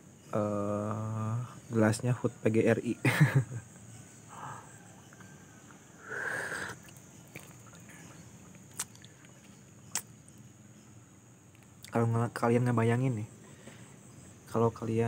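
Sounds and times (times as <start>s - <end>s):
high insect drone: 0.0s - 15.0s.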